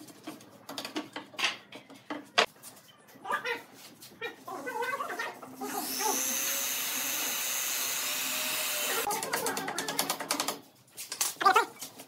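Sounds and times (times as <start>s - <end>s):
electric drill whining: 5.7s - 9.1s
drill rapid clicking: 5.8s - 9.1s.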